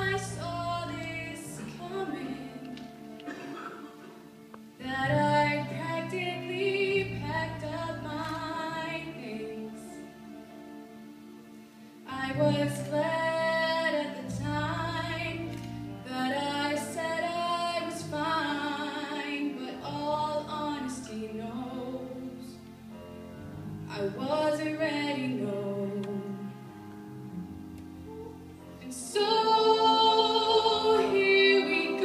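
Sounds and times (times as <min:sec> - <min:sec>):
woman singing with vibrato: 0:00.0 - 0:03.1, 0:04.8 - 0:10.0, 0:28.8 - 0:32.0
soft instrumental accompaniment: 0:00.0 - 0:32.0.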